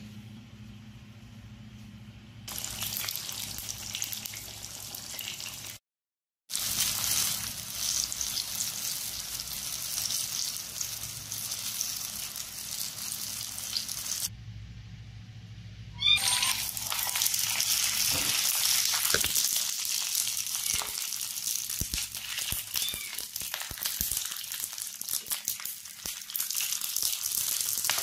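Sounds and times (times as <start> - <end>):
low steady hum: 0.0 - 4.4, 14.3 - 18.3
frying in oil sizzling: 2.5 - 5.8, 6.5 - 14.3, 16.2 - 28.0.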